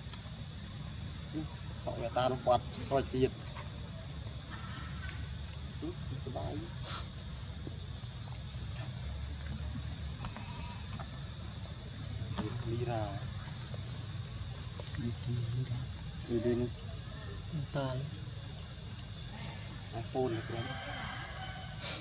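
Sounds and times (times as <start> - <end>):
high-pitched insect drone: 0.0 - 22.0.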